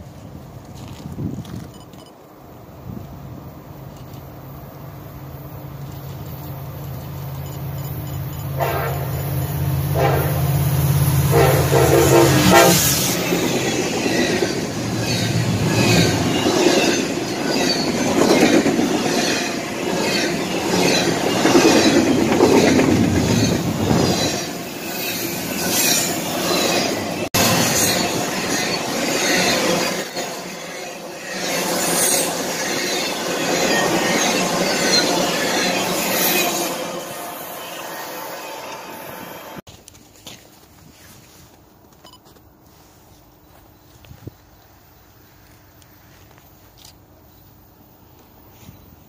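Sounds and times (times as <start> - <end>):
locomotive horn: 8.6 - 9.3, 9.9 - 13.1.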